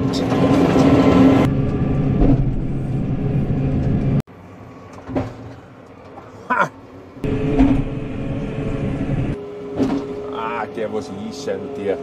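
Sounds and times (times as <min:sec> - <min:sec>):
tractor engine running: 0:00.0 - 0:04.2.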